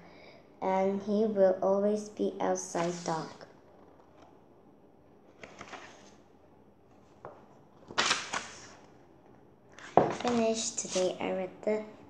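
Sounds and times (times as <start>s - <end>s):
book pages rustling: 2.8s - 4.4s, 5.3s - 6.2s, 6.9s - 8.9s, 9.7s - 11.2s.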